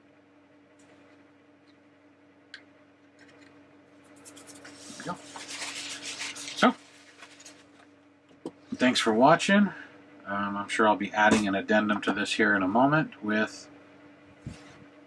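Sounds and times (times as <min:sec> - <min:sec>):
low steady hum: 0:00.0 - 0:15.0
paper towel rustling: 0:04.2 - 0:07.8.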